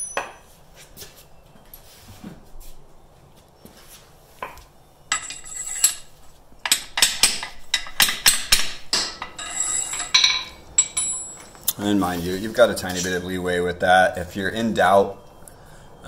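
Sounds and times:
steel parts clinking: 5.1s - 11.9s
hammer tapping metal: 6.7s - 11.6s.

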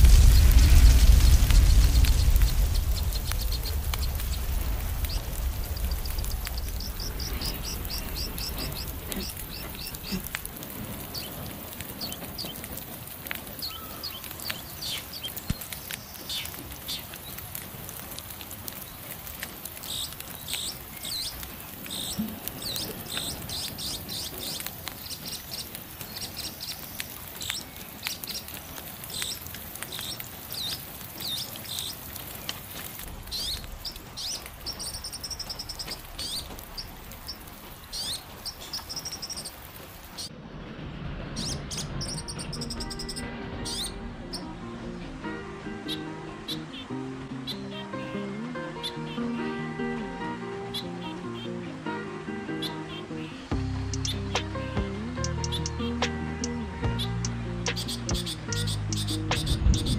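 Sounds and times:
low rumble: 0.0s - 11.8s, 33.0s - 45.7s, 58.4s - 59.9s
songbirds chirping: 0.0s - 40.4s, 41.3s - 59.9s
campfire crackling: 0.0s - 59.9s.

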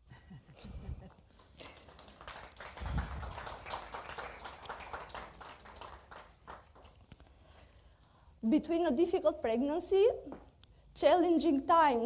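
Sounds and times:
audience applauding: 1.4s - 7.0s.

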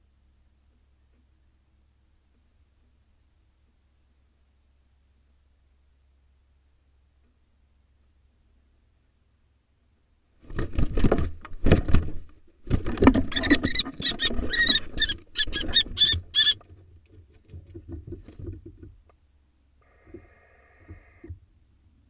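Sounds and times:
wings flapping: 10.4s - 16.6s
faint scratching: 12.7s - 16.6s
shrill kestrel calls: 13.3s - 16.6s.

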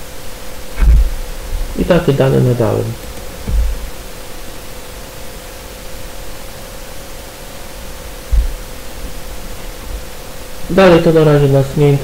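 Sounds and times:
faint steady hum: 0.0s - 12.0s
microphone hiss: 0.0s - 12.0s
low thump: 0.8s - 1.2s, 3.3s - 4.0s, 8.3s - 8.8s.

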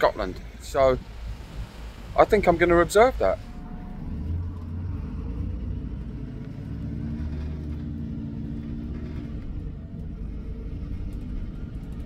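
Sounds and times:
car engine driving past: 3.4s - 12.0s.

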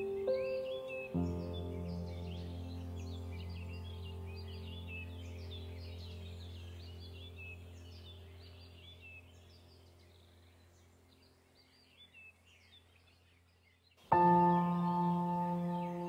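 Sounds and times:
soft ambient music drone: 0.0s - 11.9s, 14.1s - 16.0s
birds chirping: 0.0s - 16.0s.

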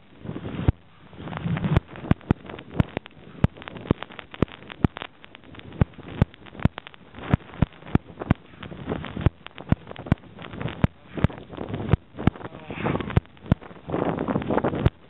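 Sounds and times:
wind on microphone: 0.0s - 15.0s
camera bumping against clothing: 0.6s - 12.4s.

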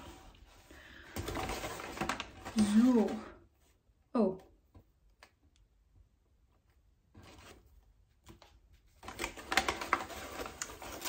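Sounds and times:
paper bag rustling and crinkling: 0.0s - 3.4s, 8.8s - 11.0s.

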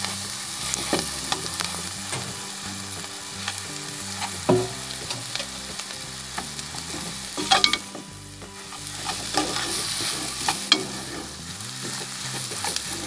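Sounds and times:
oil sizzling: 0.0s - 13.0s
spoon knocking against pan: 4.4s - 5.3s
spoon scraping metal pan: 6.4s - 13.0s.

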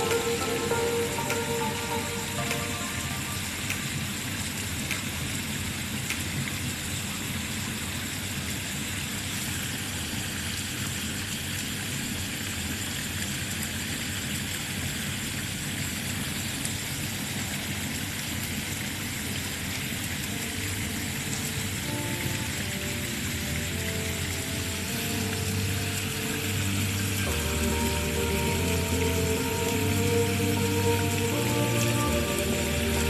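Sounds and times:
water hissing: 0.0s - 4.8s, 20.4s - 33.0s.

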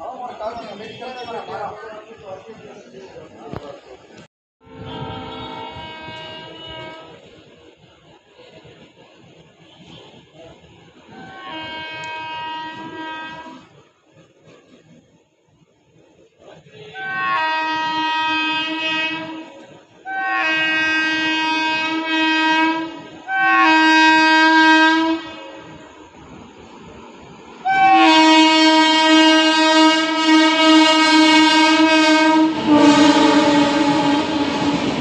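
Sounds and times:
train horn blasts: 4.6s - 7.4s, 11.1s - 14.8s, 16.6s - 26.1s, 27.6s - 35.0s.

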